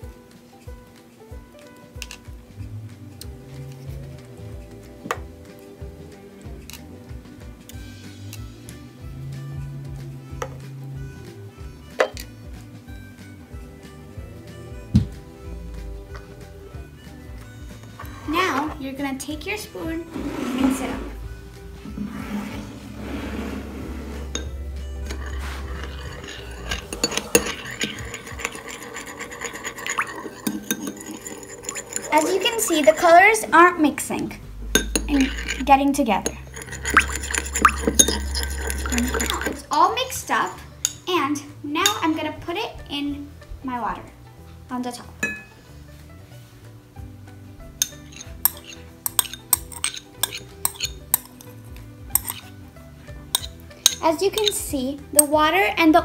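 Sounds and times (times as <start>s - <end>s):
metal spoon scraping ceramic bowl: 19.8s - 33.8s, 34.6s - 41.0s, 47.8s - 55.4s.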